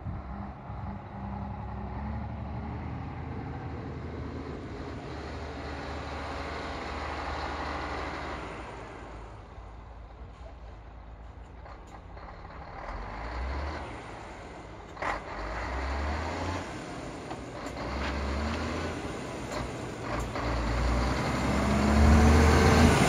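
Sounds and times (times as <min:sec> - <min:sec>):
truck diesel engine running: 0:11.2 - 0:23.0.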